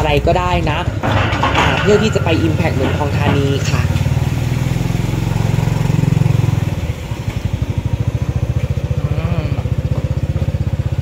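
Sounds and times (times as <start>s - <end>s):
motorcycle engine puttering: 0.0s - 11.0s.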